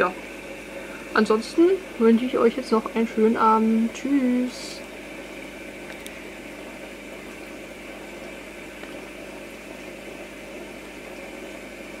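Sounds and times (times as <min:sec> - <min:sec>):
aquarium filter bubbling: 0:00.0 - 0:12.0
low mechanical hum: 0:00.0 - 0:12.0.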